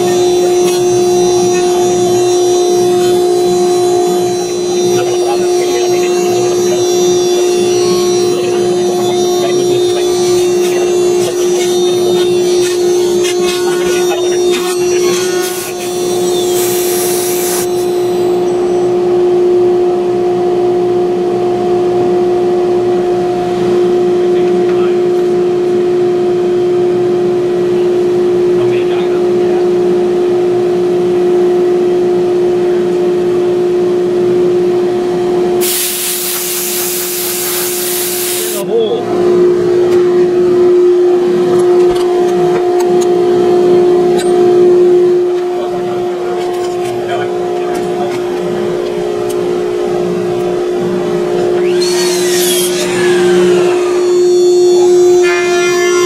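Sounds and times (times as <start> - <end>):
dust collector humming: 0.0 - 26.1, 31.9 - 56.0
router spindle whine: 0.0 - 56.0
rushing hiss: 35.6 - 38.6.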